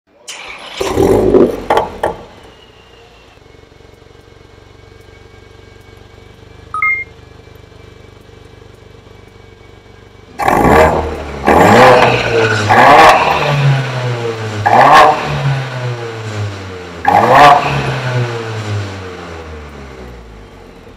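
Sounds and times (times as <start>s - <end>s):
car engine revving and idling: 0.3s - 20.9s
two-tone electronic beep: 6.7s - 7.2s.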